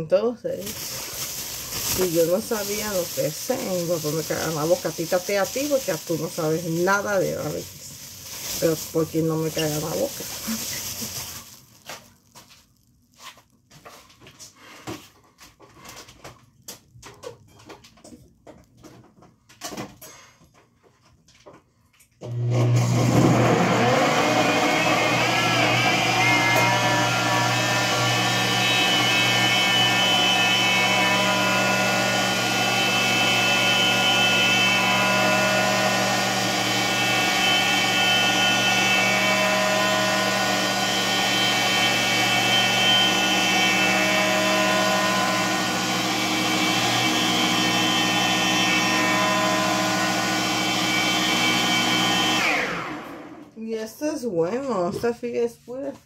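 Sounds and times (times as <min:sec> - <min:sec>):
blender running: 0:00.6 - 0:12.0, 0:22.2 - 0:53.6.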